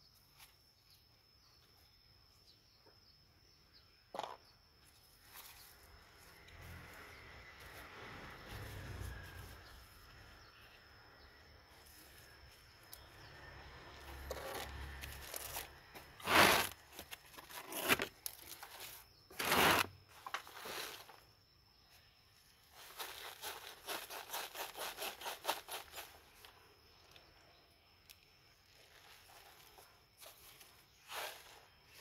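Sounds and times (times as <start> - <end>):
plastic pots scraping: 14.0 - 21.3
plastic pot crackling: 14.1 - 21.2.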